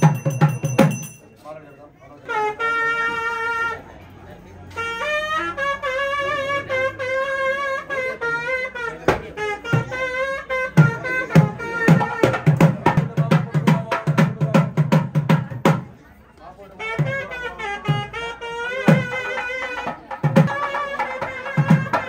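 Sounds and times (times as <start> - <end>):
drum strokes: 0.0 - 1.2, 9.0 - 15.9, 17.0 - 22.0
reed horn playing melody: 2.2 - 4.1, 4.7 - 12.4, 16.8 - 22.0.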